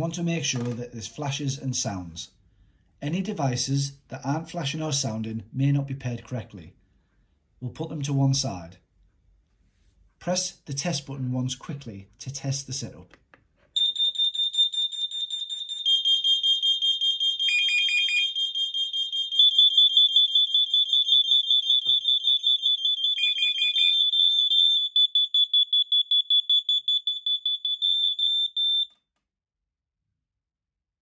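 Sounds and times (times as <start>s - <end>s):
lower alarm beep: 13.8s - 28.9s
smoke alarms beeping rapidly: 13.8s - 29.0s.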